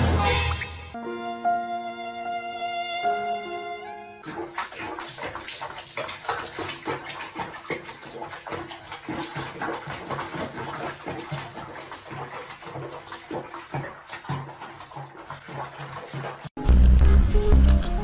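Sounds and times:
water sloshing and splashing: 4.2 - 18.0.

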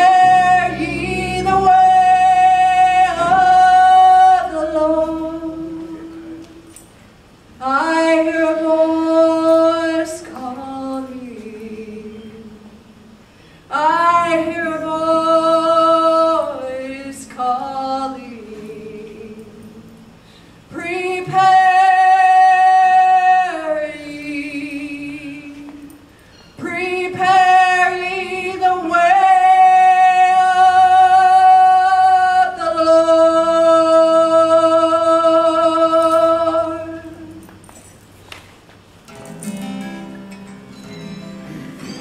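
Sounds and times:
acoustic guitar strumming: 0.0 - 6.3, 39.1 - 42.0
woman singing: 0.0 - 6.8, 7.6 - 20.0, 20.7 - 37.7.

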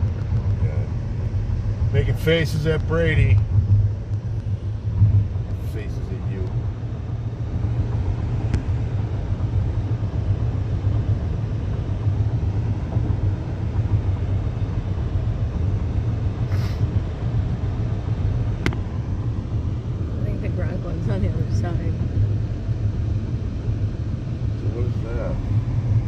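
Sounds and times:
car road and engine rumble: 0.0 - 26.0
brief hiss: 16.5 - 16.9.

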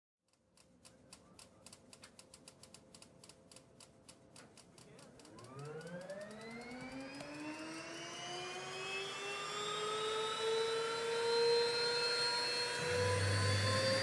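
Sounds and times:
jet engine igniters ticking: 0.3 - 7.7
jet engine whine spooling up: 5.3 - 14.0.

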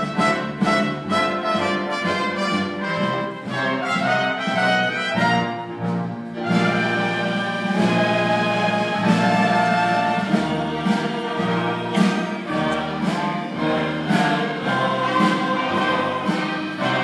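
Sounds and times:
brass instruments: 0.0 - 17.0
orchestra playing show music: 0.0 - 17.0.

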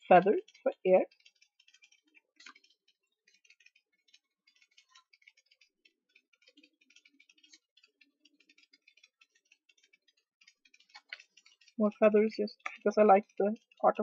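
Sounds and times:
cards ticking as handled: 0.0 - 14.0.

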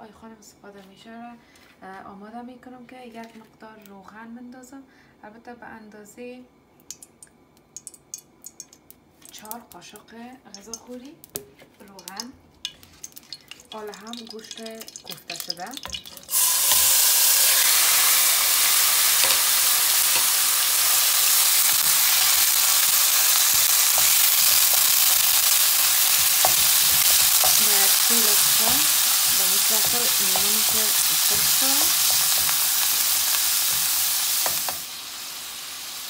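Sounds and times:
meat sizzling in hot oil: 12.0 - 36.0.

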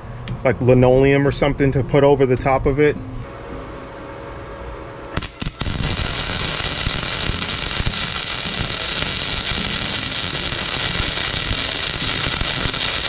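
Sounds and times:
welding arc crackling: 5.2 - 13.0.

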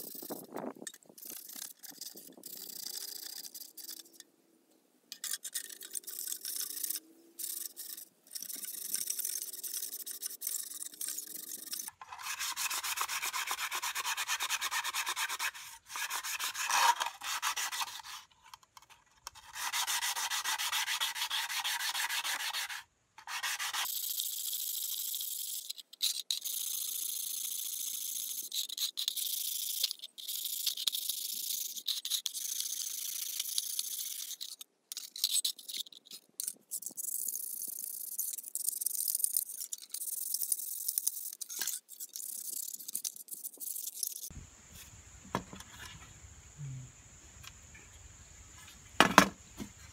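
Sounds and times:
hand rubbing rusty sheet metal: 5.1 - 23.9.

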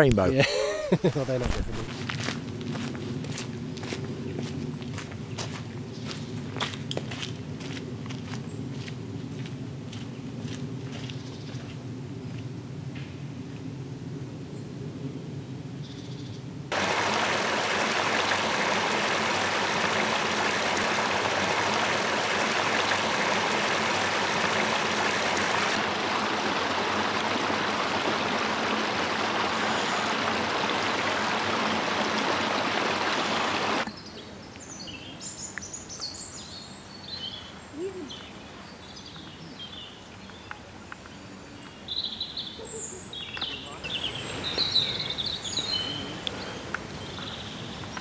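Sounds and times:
rush of running water: 0.0 - 1.9, 16.7 - 33.9, 43.9 - 48.0
small birds chirping: 33.8 - 48.0.

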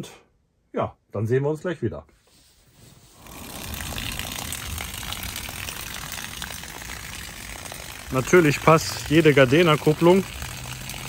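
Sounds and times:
water rushing through filter housing: 3.0 - 11.0.

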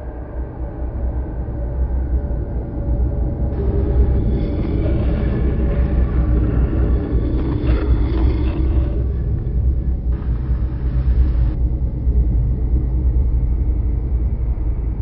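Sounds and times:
ferry engines rumbling: 3.6 - 11.6.

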